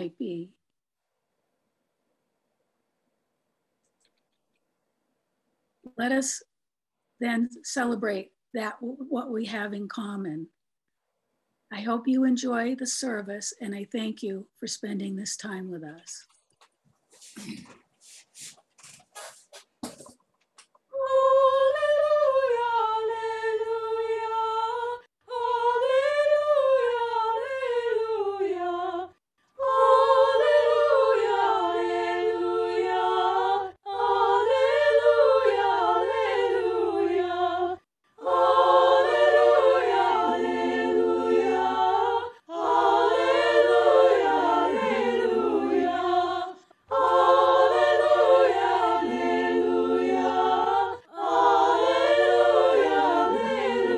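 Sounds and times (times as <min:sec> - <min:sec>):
voices singing a cappella: 0:20.9 - 0:53.9.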